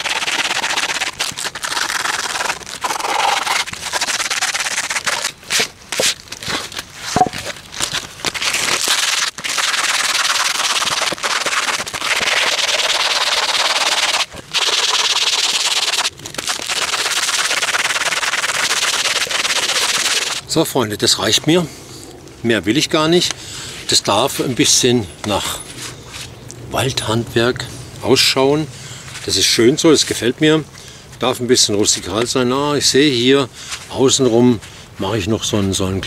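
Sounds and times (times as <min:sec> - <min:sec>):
sandpaper scratching on wood: 0:00.0 - 0:06.2, 0:08.7 - 0:20.4.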